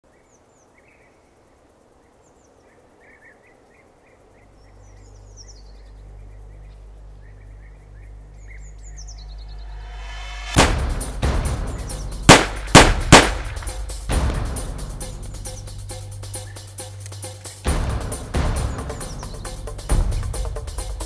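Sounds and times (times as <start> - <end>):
songbirds chirping: 0.0 - 21.0
low steady drone: 4.5 - 21.0.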